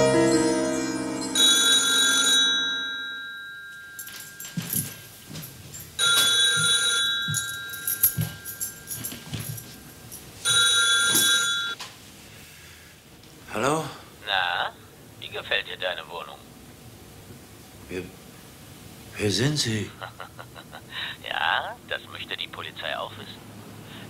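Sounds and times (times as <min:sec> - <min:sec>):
telephone bell ringing: 0:00.0 - 0:09.8, 0:10.4 - 0:11.8.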